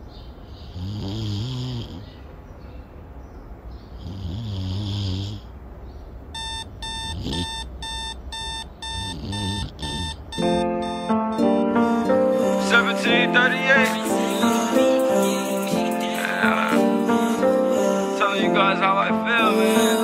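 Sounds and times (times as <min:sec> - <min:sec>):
person snoring: 0:00.7 - 0:02.1, 0:04.0 - 0:05.5, 0:07.1 - 0:07.6, 0:09.0 - 0:10.2
alarm clock beeping fast: 0:06.4 - 0:11.5
music: 0:10.4 - 0:20.0.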